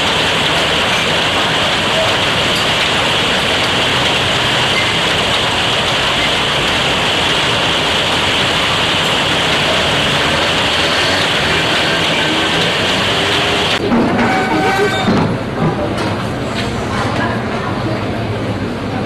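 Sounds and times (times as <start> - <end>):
heavy rain on wet pavement: 0.0 - 13.8.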